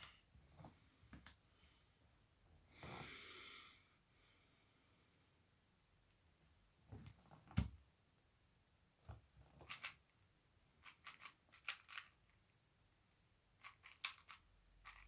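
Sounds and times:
puzzle cube layers clicking: 0:13.6 - 0:15.0.

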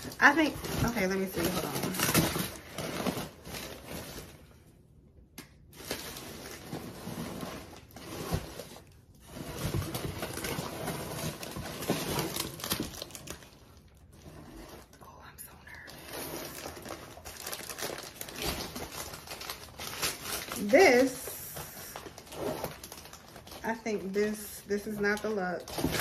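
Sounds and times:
paper wrapping crinkling: 0:05.6 - 0:26.0.

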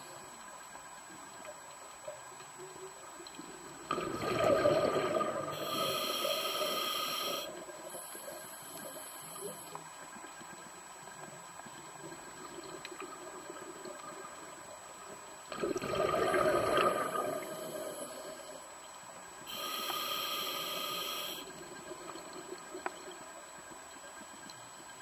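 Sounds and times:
exhaled bubbles gurgling: 0:03.5 - 0:07.8, 0:15.4 - 0:18.6
regulator inhalation hiss: 0:05.5 - 0:09.7, 0:19.5 - 0:21.5.

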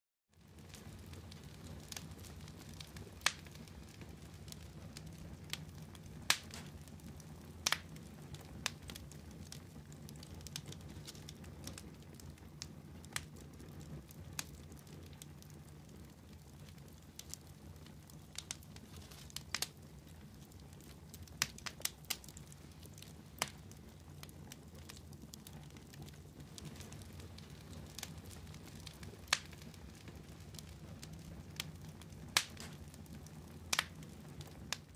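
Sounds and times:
wood fire crackling: 0:00.3 - 0:34.9.

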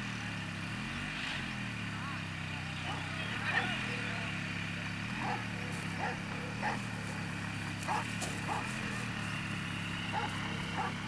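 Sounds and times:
steady motor drone: 0:00.0 - 0:11.0
dog yelping and barking: 0:10.1 - 0:10.9.

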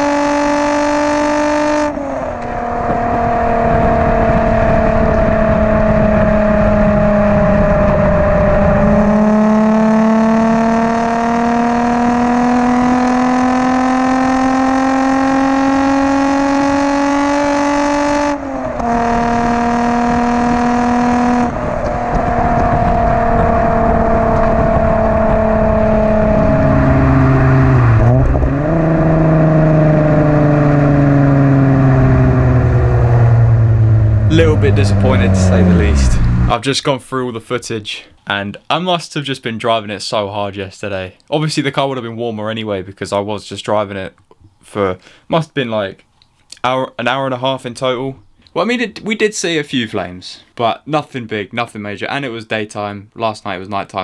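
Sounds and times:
car exhaust while driving: 0:00.0 - 0:36.6.

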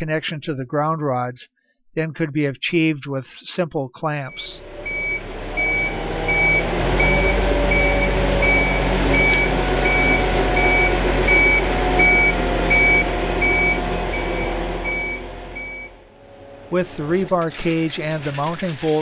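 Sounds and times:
back-up alarm beeping: 0:04.3 - 0:16.0
diesel engine running: 0:04.4 - 0:19.0.

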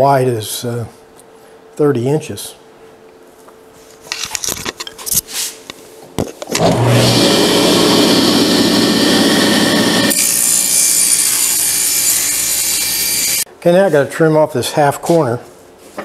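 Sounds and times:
saw cutting plywood: 0:06.6 - 0:13.4
table saw running: 0:06.6 - 0:13.4.

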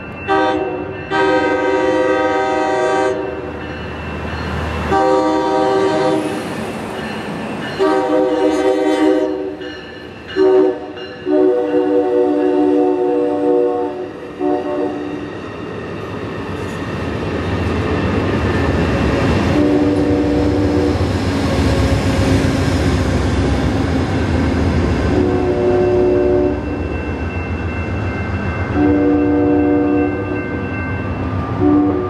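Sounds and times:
train horn blasts: 0:00.3 - 0:03.5, 0:04.9 - 0:06.4, 0:07.8 - 0:09.6, 0:10.4 - 0:15.3, 0:19.5 - 0:21.0, 0:25.1 - 0:26.8, 0:28.8 - 0:30.4, 0:31.6 - 0:32.0
diesel locomotive rumble: 0:00.3 - 0:32.0.

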